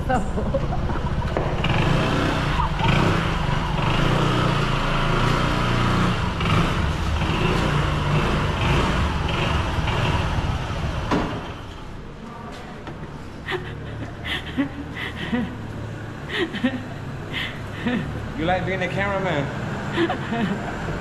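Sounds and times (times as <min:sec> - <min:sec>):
low engine hum: 0:00.0 - 0:11.1
road noise: 0:00.0 - 0:21.0.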